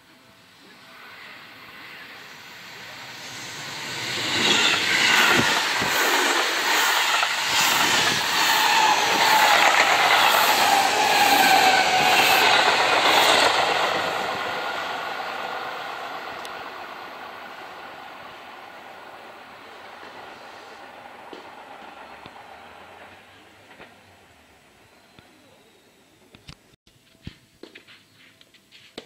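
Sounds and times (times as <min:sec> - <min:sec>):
electric train passing: 0:00.1 - 0:26.3
wheels clacking over rail joints: 0:03.8 - 0:14.7.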